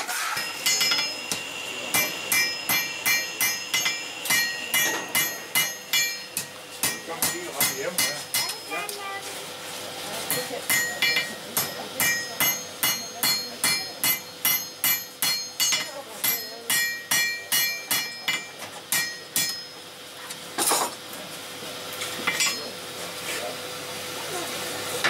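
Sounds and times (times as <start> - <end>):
hammer striking iron on anvil: 0.0 - 8.7, 10.3 - 19.8, 22.2 - 22.8.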